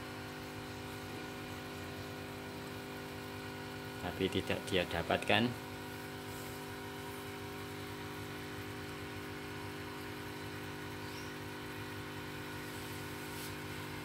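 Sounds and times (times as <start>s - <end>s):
steady electrical hum: 0.0s - 14.0s.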